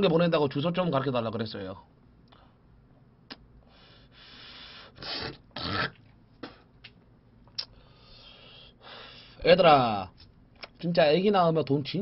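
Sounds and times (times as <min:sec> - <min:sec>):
man breathing while smoking: 0:03.6 - 0:05.4, 0:07.6 - 0:09.4.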